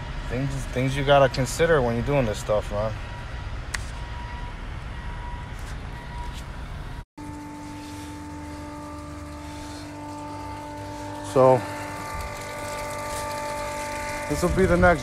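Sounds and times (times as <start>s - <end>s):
electric pump humming: 7.2s - 15.0s.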